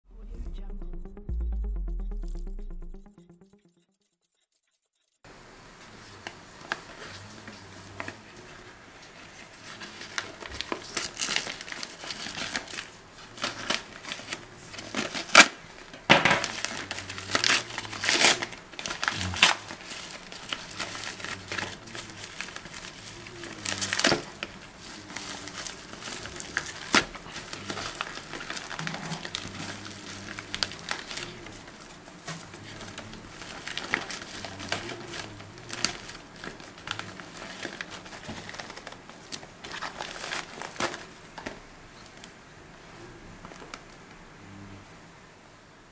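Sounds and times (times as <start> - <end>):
plastic crinkling and rustling: 5.8 - 42.4, 43.4 - 44.1
plastic tearing: 9.7 - 42.3.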